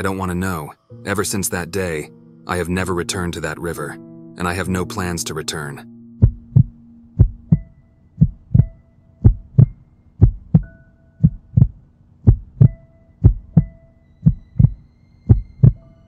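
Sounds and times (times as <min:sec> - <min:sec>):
heartbeat thumps: 0:06.2 - 0:15.8.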